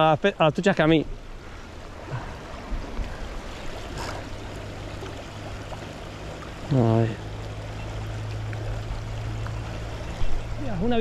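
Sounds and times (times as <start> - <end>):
river flowing over stones: 0.0 - 11.0.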